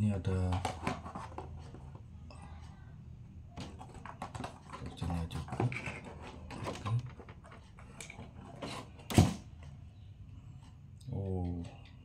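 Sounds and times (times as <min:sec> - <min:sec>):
cardboard and plastic rustling: 0:00.3 - 0:02.1, 0:03.5 - 0:09.7.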